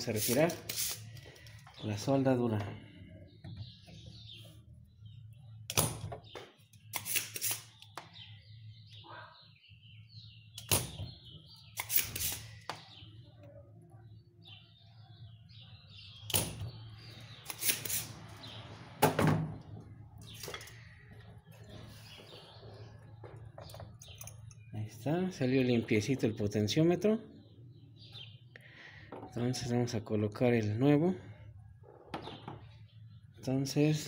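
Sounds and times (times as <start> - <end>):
desoldering pump snapping: 5.7 - 8.2, 10.6 - 11.1, 11.7 - 12.8, 16.3 - 16.7.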